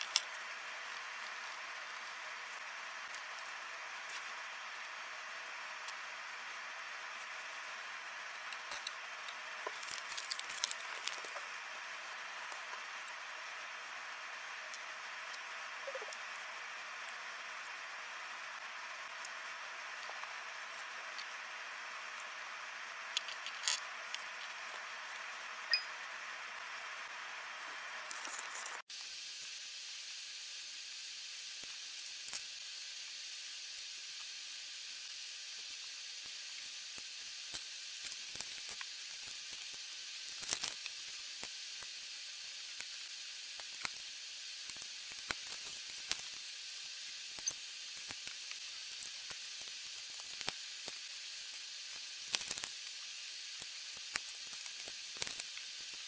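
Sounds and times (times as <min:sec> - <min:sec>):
steady hiss: 0:00.0 - 0:56.0.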